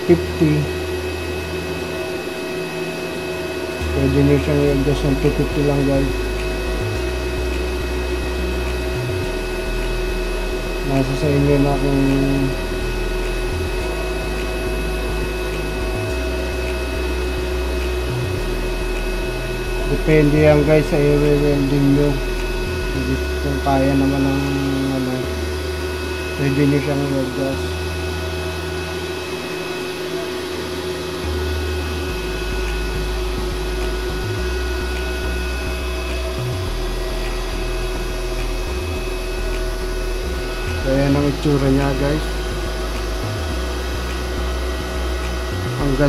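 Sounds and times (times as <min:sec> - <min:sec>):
welding machine cooling fan whirring: 0:00.0 - 0:46.0
low rumble: 0:31.2 - 0:46.0.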